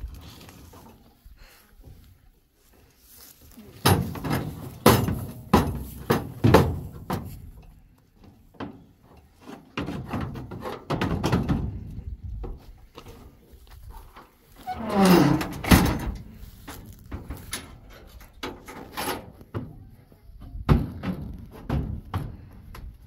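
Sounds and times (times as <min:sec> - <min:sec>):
dull thuds and knocks: 0:03.8 - 0:07.4, 0:20.6 - 0:22.8.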